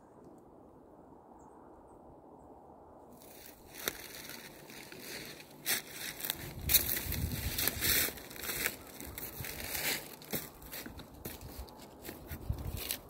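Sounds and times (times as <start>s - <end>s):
footsteps crunching on leaves and snow: 3.2s - 13.0s.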